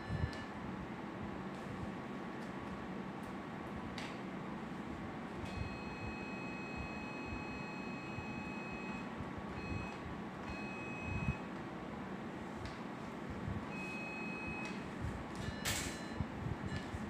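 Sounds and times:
operating room background noise: 0.0s - 17.0s
high steady beep tone: 5.5s - 11.4s, 13.7s - 14.8s.

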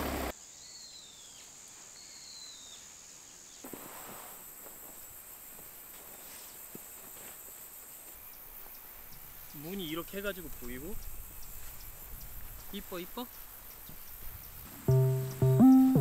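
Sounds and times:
vehicle engine: 0.0s - 0.3s
insects chirring: 2.1s - 16.0s.

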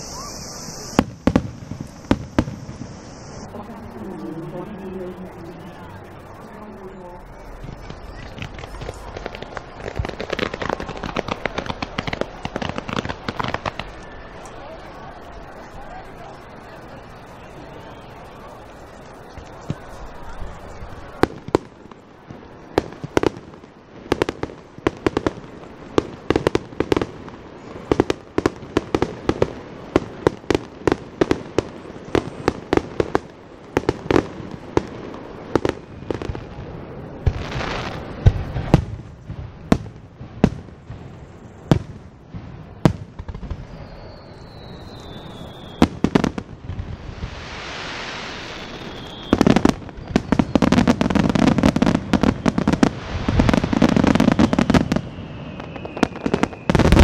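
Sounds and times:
falling firework whistle: 0.0s - 21.8s, 40.4s - 57.0s
fireworks bangs and cracks: 0.0s - 57.0s
fireworks crackling barrage: 0.0s - 57.0s.

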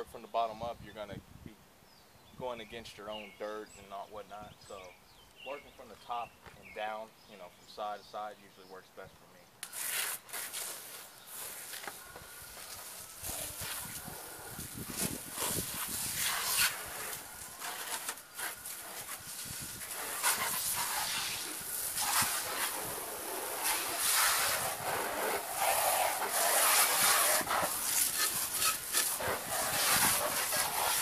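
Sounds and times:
hose spray hitting a car: 12.6s - 31.0s.

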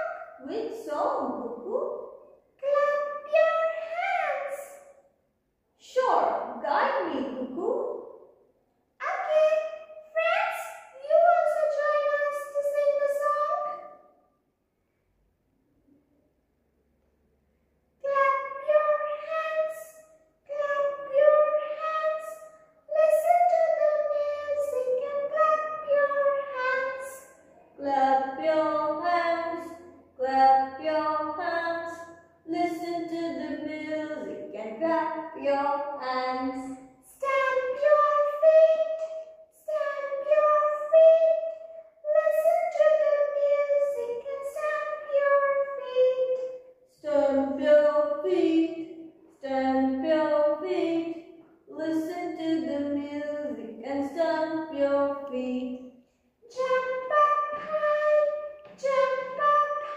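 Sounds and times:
high voice singing unaccompanied: 0.0s - 4.8s, 9.0s - 13.8s, 18.0s - 55.8s, 56.4s - 59.9s
high voice singing held notes: 56.4s - 59.9s.

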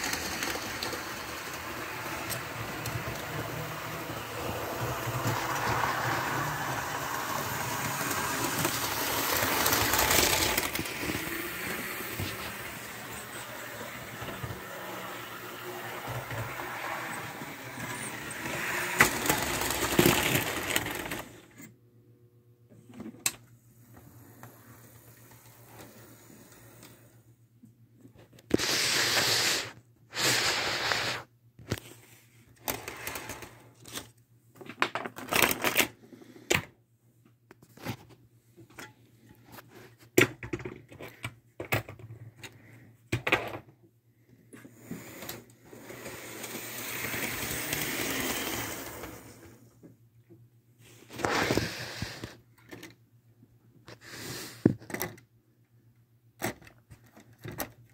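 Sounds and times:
model train wheels clattering: 0.0s - 21.4s, 44.9s - 49.4s.

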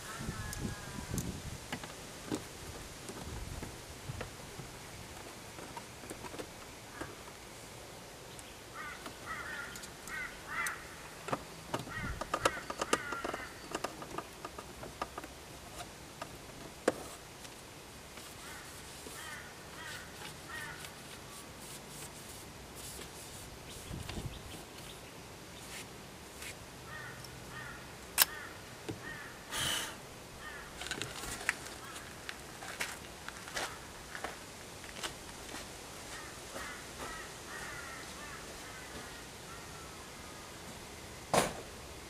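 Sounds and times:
rustle: 0.0s - 42.0s
bird calling: 8.3s - 14.1s, 18.3s - 21.4s, 26.9s - 30.8s, 36.1s - 40.6s.

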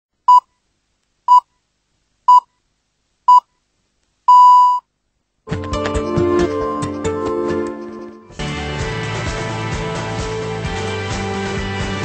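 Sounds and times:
longer beep: 4.3s - 4.8s
short high beeps: 4.3s - 4.8s
music: 5.5s - 12.0s.

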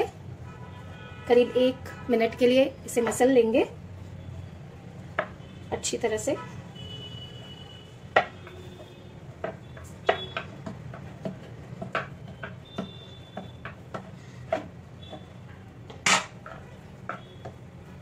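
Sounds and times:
dough knocking on wooden board: 8.1s - 8.8s, 9.4s - 15.3s.

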